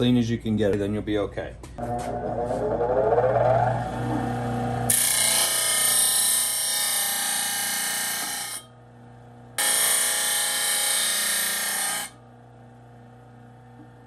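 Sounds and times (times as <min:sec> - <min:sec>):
disc sander grinding steel: 0:02.0 - 0:08.7, 0:09.6 - 0:12.2.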